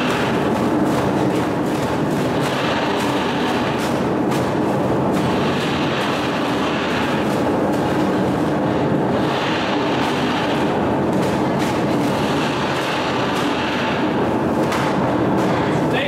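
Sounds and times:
loud steady rumbling: 0.0 - 16.0.

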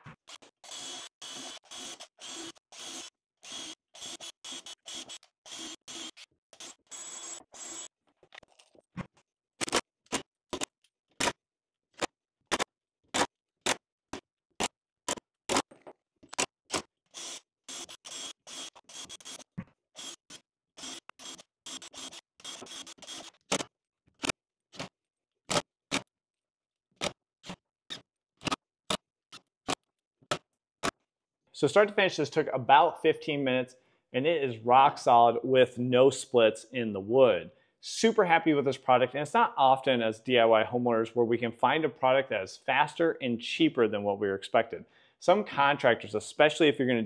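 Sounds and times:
cordless drill running in bursts: 0.6 - 7.9, 17.1 - 19.4, 20.0 - 23.3.

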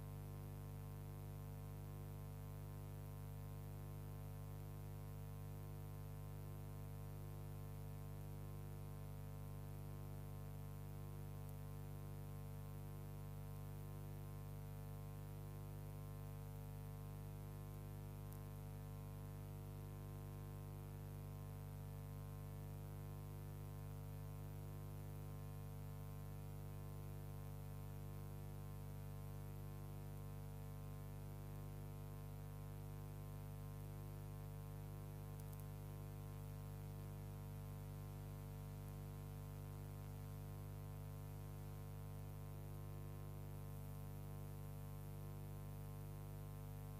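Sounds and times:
low electrical hum: 0.0 - 46.9.

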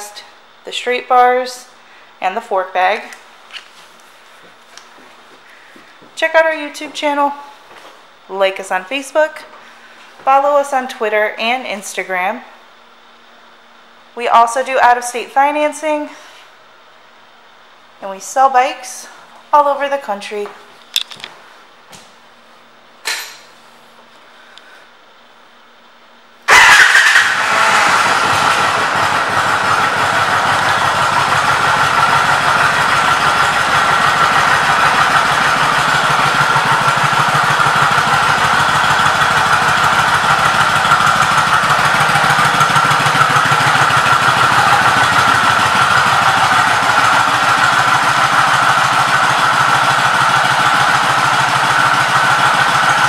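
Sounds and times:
motorcycle engine idling: 26.5 - 53.0.

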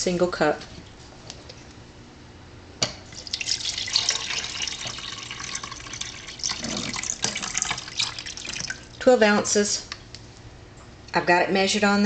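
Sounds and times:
water pouring and splashing: 3.1 - 9.0.

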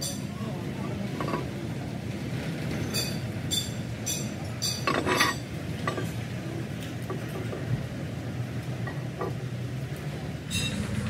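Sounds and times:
workshop machinery rumbling: 10.1 - 11.0.

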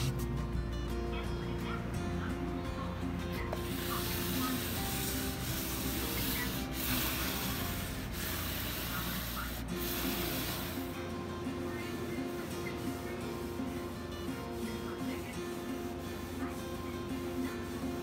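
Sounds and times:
sandpaper rubbing on wood: 0.0 - 0.3, 3.6 - 11.0, 12.4 - 18.0.

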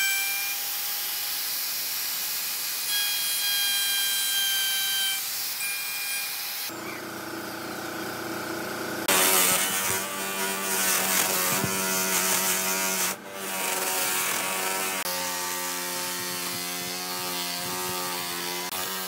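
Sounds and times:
power tool motor whine: 9.0 - 19.0
bristles rasping on wood: 9.1 - 19.0.

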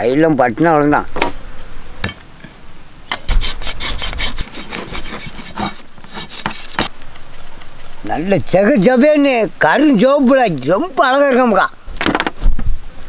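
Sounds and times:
knife scraping fish scales: 3.3 - 6.9.

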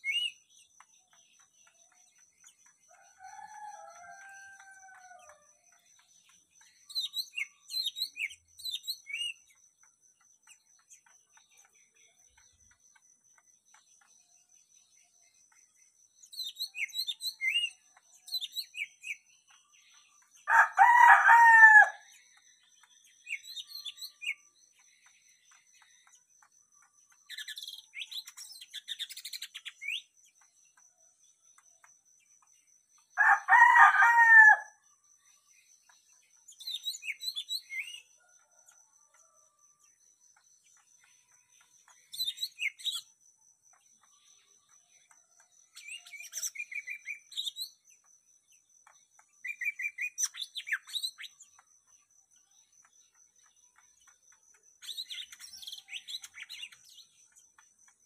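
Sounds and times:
songbirds chirping: 0.0 - 58.0
rooster crowing: 2.9 - 5.5, 20.5 - 22.1, 33.2 - 34.8.

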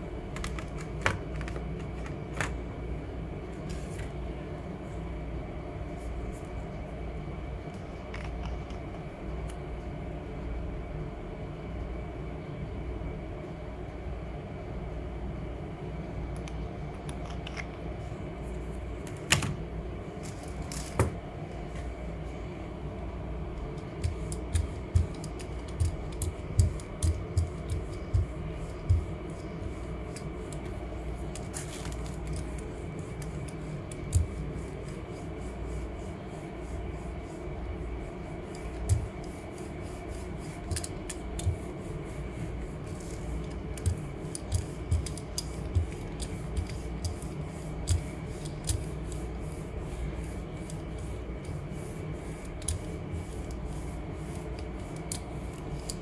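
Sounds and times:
brayer rubbing over plate: 23.9 - 56.0.

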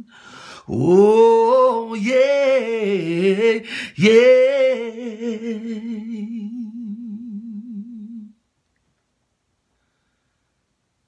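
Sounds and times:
man singing long held note: 0.0 - 8.4.

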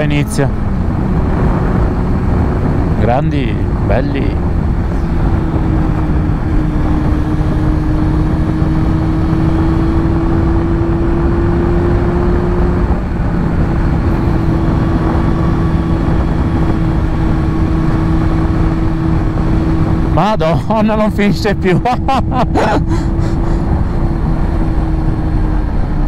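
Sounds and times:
motorcycle engine running: 0.0 - 20.7
wind and road rush: 0.0 - 26.0.

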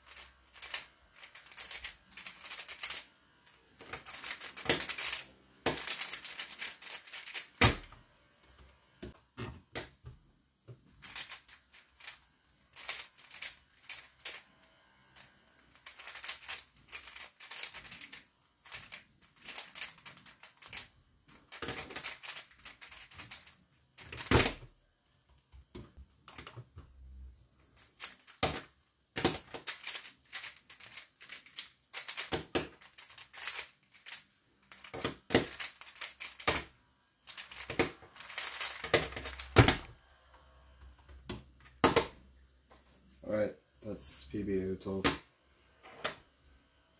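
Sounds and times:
rapid plastic clicking of cube: 0.0 - 7.9, 10.7 - 24.7, 27.7 - 39.9.

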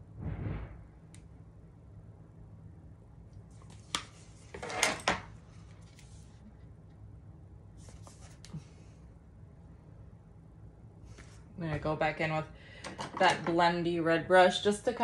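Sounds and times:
steady low hum: 0.0 - 4.6, 5.2 - 15.0.

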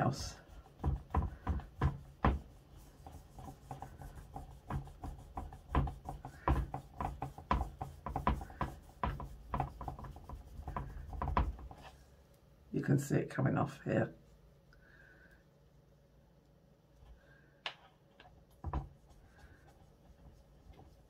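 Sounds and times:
cotton wool rubbing and scuffing: 0.0 - 12.2, 18.9 - 21.0.

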